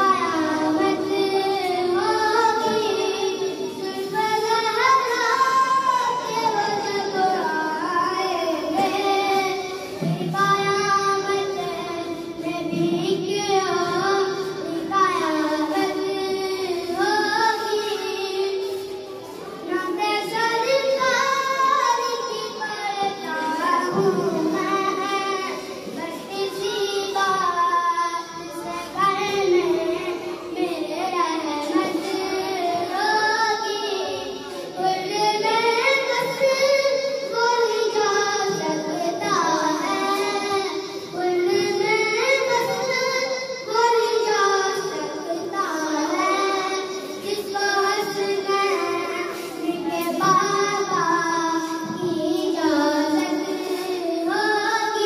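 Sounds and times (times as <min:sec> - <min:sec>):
boy singing through loudspeaker: 0:00.0 - 0:55.0.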